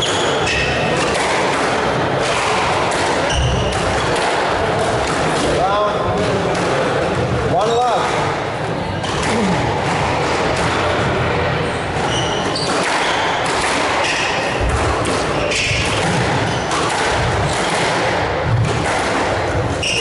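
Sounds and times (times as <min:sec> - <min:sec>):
squash ball striking rackets and walls: 0:00.0 - 0:08.4, 0:09.0 - 0:20.0
shoe squeaks on wooden floor: 0:03.2 - 0:03.8, 0:12.0 - 0:13.4, 0:19.8 - 0:20.0.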